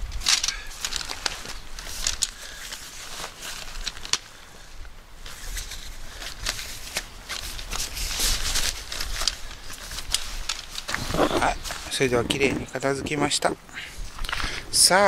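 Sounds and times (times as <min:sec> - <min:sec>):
tent fabric rustling: 0:00.0 - 0:13.0
bag zipper: 0:10.9 - 0:11.6.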